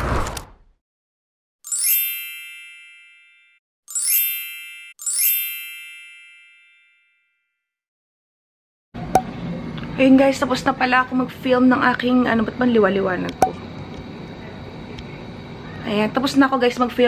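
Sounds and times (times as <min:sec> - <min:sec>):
bright chimes ringing: 0:01.7 - 0:07.1.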